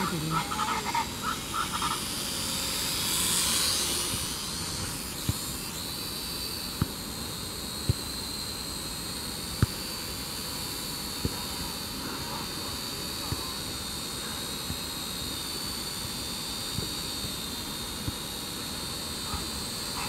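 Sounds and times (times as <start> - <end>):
drone propellers whining: 0.0 - 20.0.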